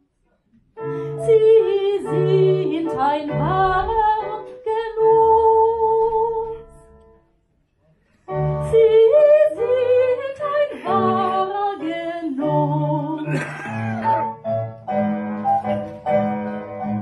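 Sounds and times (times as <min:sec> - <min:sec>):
instrumental accompaniment: 0:00.8 - 0:17.0
woman singing: 0:01.2 - 0:06.8, 0:08.6 - 0:13.4.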